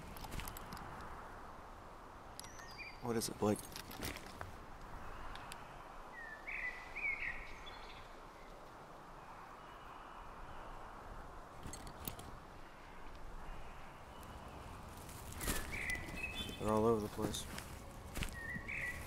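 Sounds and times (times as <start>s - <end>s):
faint clicks: 3.7s - 5.7s
soft woodland hiss: 4.6s - 11.5s, 12.3s - 19.0s
bird calling: 12.6s - 19.0s.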